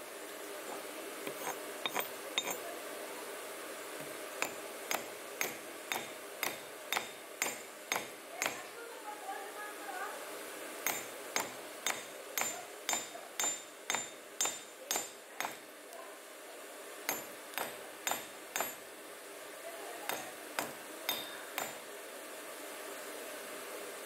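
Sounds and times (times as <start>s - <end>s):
hammer striking metal rod: 1.3s - 2.6s, 4.4s - 8.6s, 10.9s - 15.6s, 17.1s - 18.8s, 20.1s - 21.8s.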